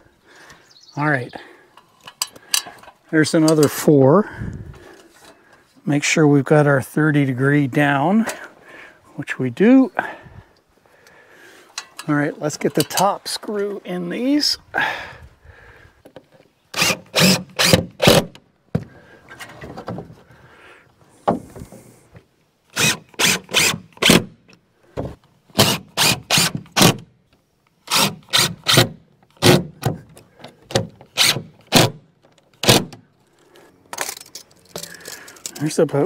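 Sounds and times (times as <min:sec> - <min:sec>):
cordless driver driving screws: 0:16.7 - 0:18.4, 0:22.7 - 0:24.3, 0:25.6 - 0:27.0, 0:27.8 - 0:32.0, 0:32.6 - 0:33.0.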